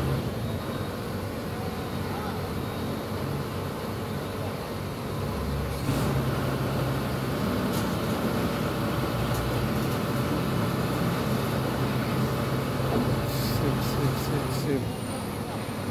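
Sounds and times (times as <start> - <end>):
diesel engine idling: 0.0 - 15.9.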